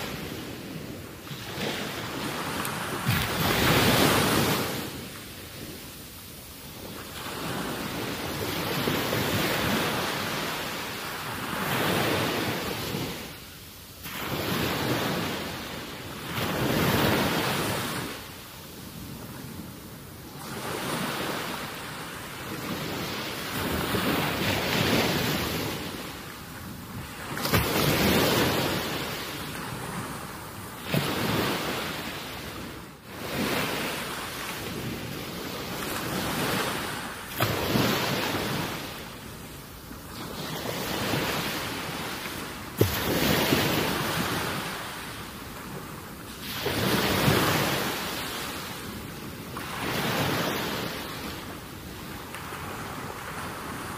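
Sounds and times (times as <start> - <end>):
rushing wind: 0.0 - 13.4
waves on seashore: 0.0 - 53.9.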